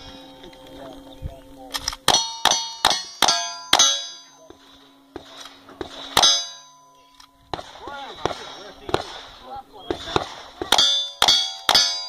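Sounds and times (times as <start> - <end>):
rifle shots: 1.7 - 6.6, 7.5 - 12.0
steel targets clanging: 1.8 - 12.0.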